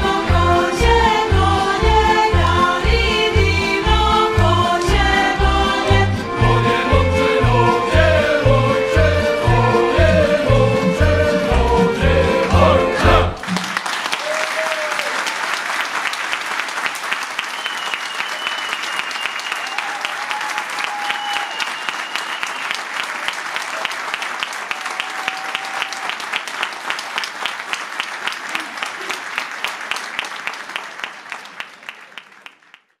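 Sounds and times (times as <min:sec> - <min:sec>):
rhythmic clapping in unison: 0:00.0 - 0:33.0
audience applauding: 0:12.4 - 0:33.0.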